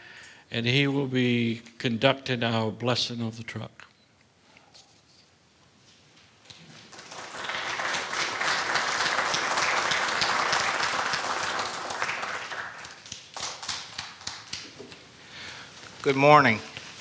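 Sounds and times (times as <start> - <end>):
audience applauding: 6.6 - 14.8.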